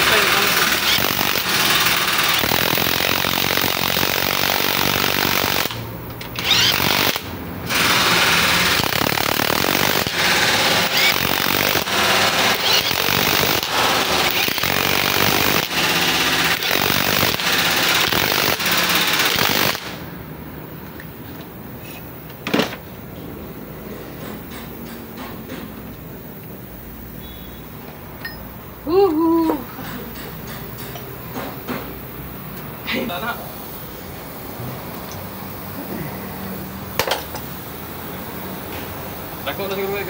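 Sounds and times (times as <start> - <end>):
impact wrench hammering: 0.0 - 19.8, 37.0 - 37.5.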